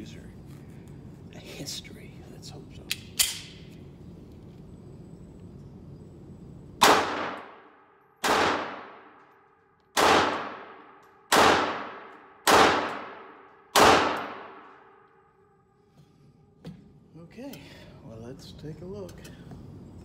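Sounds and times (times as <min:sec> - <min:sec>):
pistol shots ringing indoors: 0:02.9 - 0:03.7, 0:06.8 - 0:15.6.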